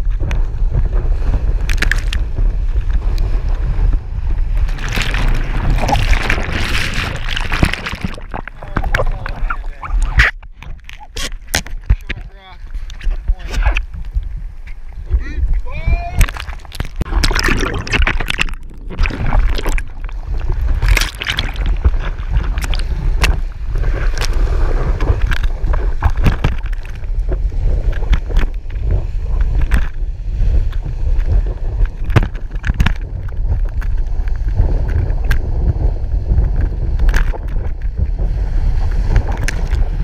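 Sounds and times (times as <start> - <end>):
wind rumble on microphone: 0.0 - 40.0
breaking wave whitewater rushing: 1.4 - 10.3.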